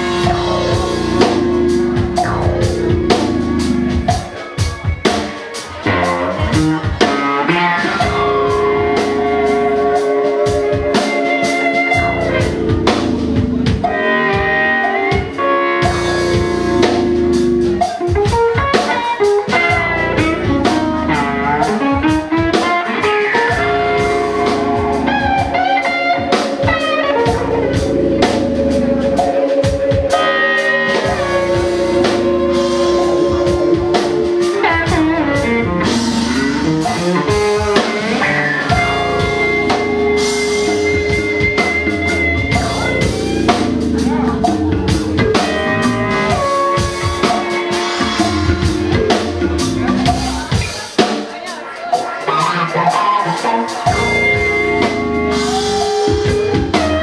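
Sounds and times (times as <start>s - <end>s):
drum kit and percussion: 0.0s - 57.0s
electric guitars: 0.0s - 57.0s.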